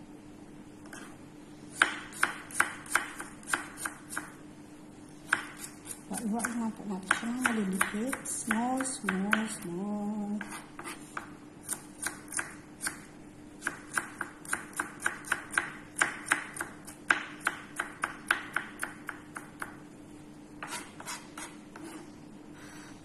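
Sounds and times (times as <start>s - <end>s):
knife chopping on wooden board: 1.8s - 4.3s, 5.3s - 9.5s, 10.4s - 13.0s, 13.6s - 19.8s, 20.6s - 22.0s.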